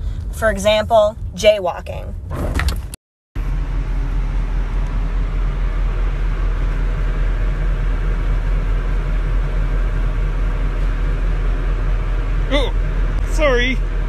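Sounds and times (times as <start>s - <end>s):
low rumble: 0.0s - 14.0s.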